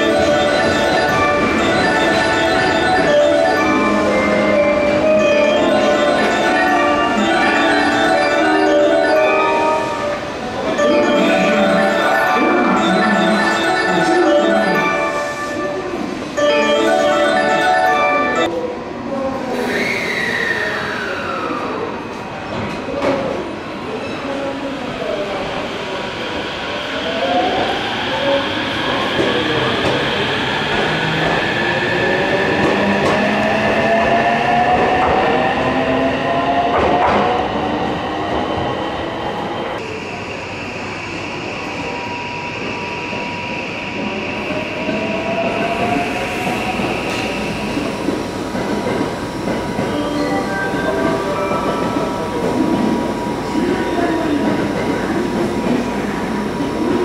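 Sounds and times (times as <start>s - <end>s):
bell-like melody over speakers: 0.0s - 18.6s, 49.8s - 52.3s.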